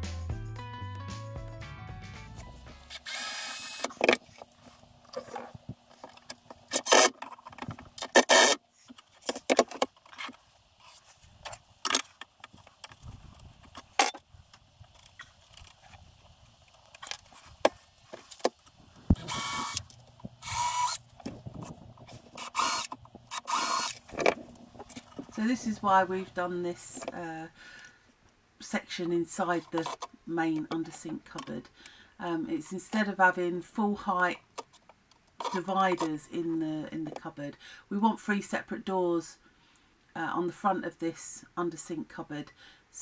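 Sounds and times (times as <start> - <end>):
cordless drill driving screws: 2.9 - 4.0, 6.7 - 7.2, 8.1 - 8.6, 19.1 - 21.0, 22.3 - 24.0.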